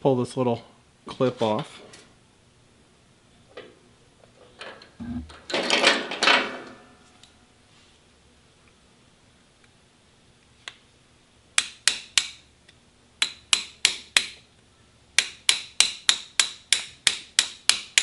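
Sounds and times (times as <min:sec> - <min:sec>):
hammer tapping on metal: 0:13.2 - 0:14.4, 0:15.2 - 0:18.0.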